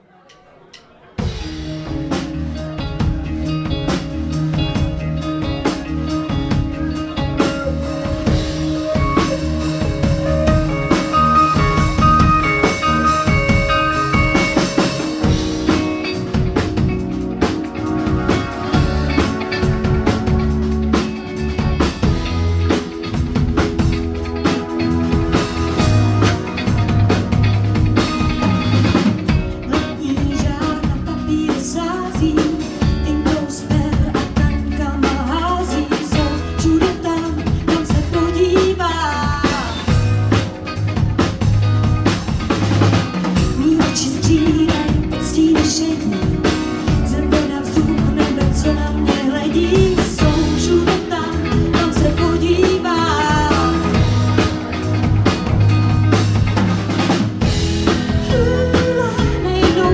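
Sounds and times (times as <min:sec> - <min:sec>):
drum kit beat: 0:00.8 - 0:59.9
electric bass: 0:01.2 - 0:59.9
electric guitar: 0:01.2 - 0:59.9
keyboard playing: 0:01.2 - 0:59.9
woman singing into microphone: 0:29.7 - 0:39.9, 0:43.4 - 0:54.1, 0:58.1 - 0:59.9.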